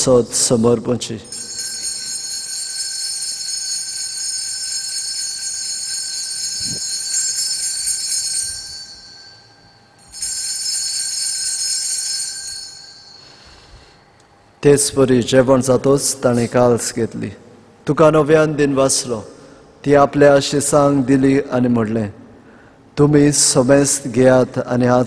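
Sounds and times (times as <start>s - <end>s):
altar bells ringing: 0.0s - 14.2s.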